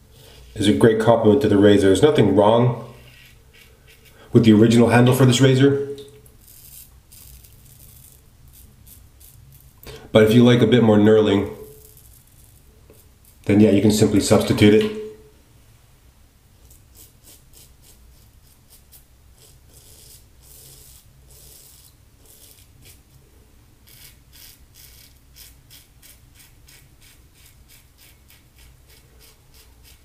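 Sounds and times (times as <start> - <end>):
razor scraping stubble: 6.3 - 9.8, 11.4 - 13.8, 16.6 - 23.1, 23.8 - 30.0.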